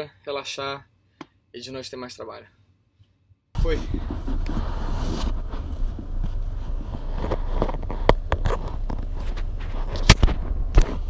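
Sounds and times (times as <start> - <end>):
fabric rubbing and scraping: 3.6 - 11.0
steady low rumble: 3.6 - 11.0.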